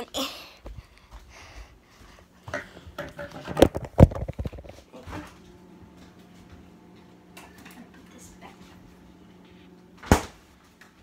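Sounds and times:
ceiling fan humming: 0.0s - 11.0s
phone clicks and bumps: 3.0s - 4.8s.

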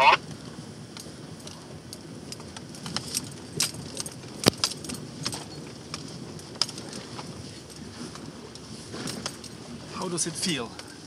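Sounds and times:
engine low rumble: 0.0s - 11.0s.

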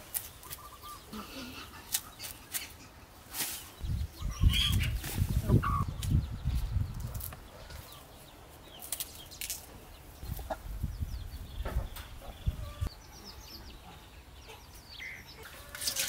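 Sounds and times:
hen clucking: 4.1s - 6.0s, 10.2s - 10.7s, 11.6s - 16.0s.

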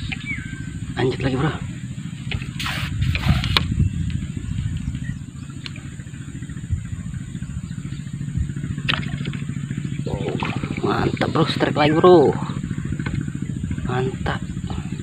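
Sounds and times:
steady low drone: 0.0s - 15.0s
small splash in water: 10.1s - 11.2s.

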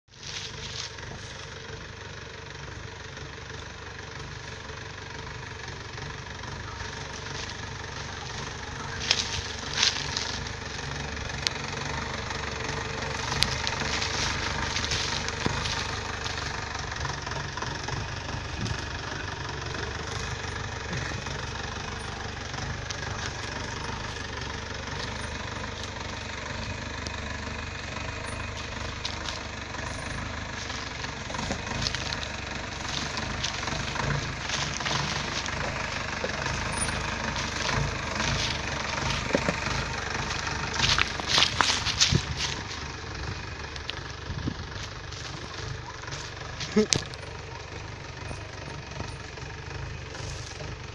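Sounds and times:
jeep engine running: 0.0s - 50.9s
tyres knocking over stones: 30.1s - 42.8s.

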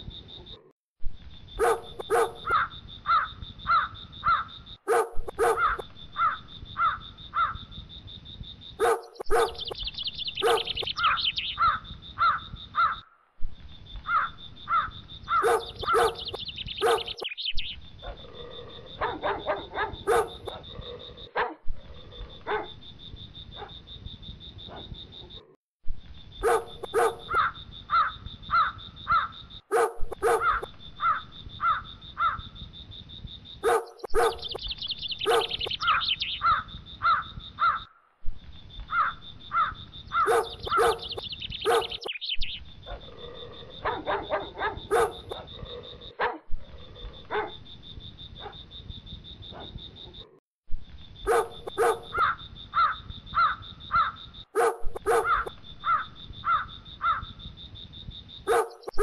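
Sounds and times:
dog barking: 1.6s - 3.3s, 4.3s - 6.4s, 8.8s - 9.8s, 10.4s - 12.4s, 15.3s - 17.2s, 19.0s - 21.6s, 22.4s - 22.8s, 23.6s - 23.8s, 24.7s - 25.5s, 26.4s - 31.2s, 33.6s - 34.6s, 35.2s - 37.8s, 40.2s - 42.1s, 42.9s - 46.5s, 47.2s - 47.6s, 48.4s - 48.6s, 49.5s - 50.4s, 51.2s - 56.0s, 58.5s - 59.0s
crows cawing: 1.6s - 4.6s, 5.4s - 7.7s, 10.5s - 13.2s, 14.0s - 16.3s, 26.4s - 29.4s, 30.2s - 32.5s, 35.3s - 38.0s, 38.9s - 41.2s, 51.8s - 54.2s, 55.1s - 57.4s.

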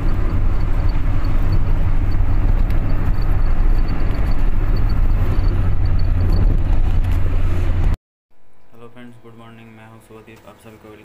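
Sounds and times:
engine and tyre rumble: 0.0s - 8.0s.

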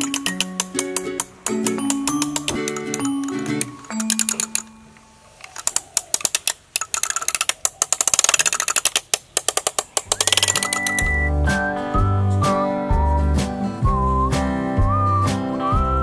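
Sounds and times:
toy ratchet-like clicks in sand: 0.0s - 4.7s, 5.5s - 11.2s.

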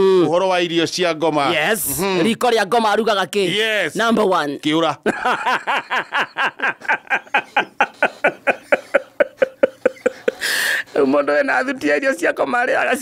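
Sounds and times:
person laughing hard: 5.1s - 10.6s
breathy gasp: 10.3s - 11.0s.

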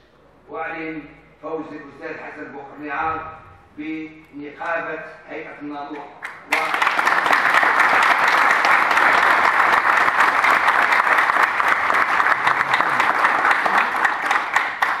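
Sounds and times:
crowd applauding: 6.2s - 15.0s.

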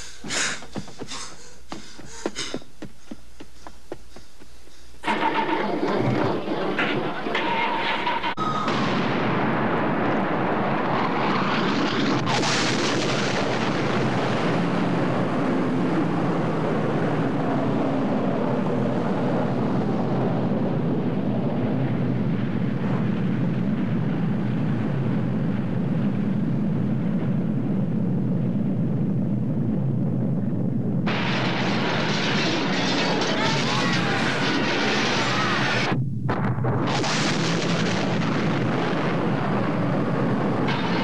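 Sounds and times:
nuclear explosion rumble: 5.0s - 41.0s
sharp blast: 7.8s - 14.6s, 31.1s - 41.0s.

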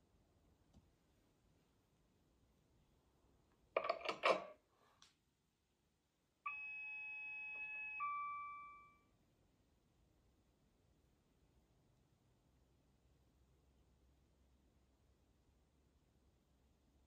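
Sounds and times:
clicks and knocks: 3.8s - 4.6s
chime ringing: 6.5s - 9.1s.

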